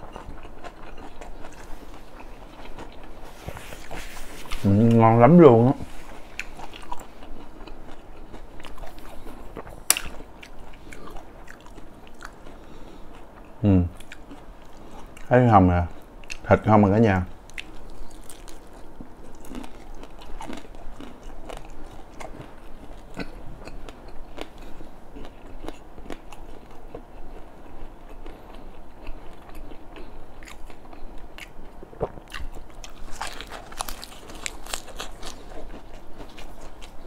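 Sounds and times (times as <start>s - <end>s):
person chewing crispy food: 0.0s - 15.3s, 17.3s - 37.0s
lettuce leaf crunching: 32.8s - 37.0s.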